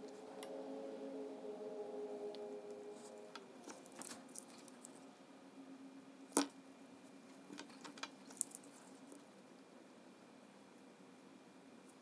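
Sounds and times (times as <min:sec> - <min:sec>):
faint steady hum: 0:00.0 - 0:12.0
clicks and taps of wire leads: 0:07.5 - 0:08.6.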